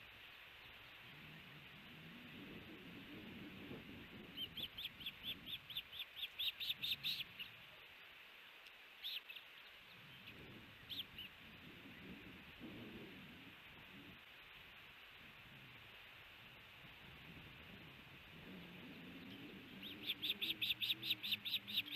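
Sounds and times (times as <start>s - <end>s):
osprey calling: 4.2s - 7.8s, 9.0s - 11.4s, 18.8s - 21.9s.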